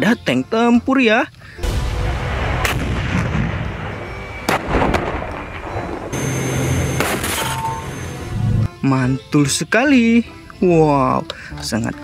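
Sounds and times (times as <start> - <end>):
low rumble: 1.6 - 6.3
tank cannon firing: 1.6 - 7.8
low hum of machinery: 6.0 - 8.7.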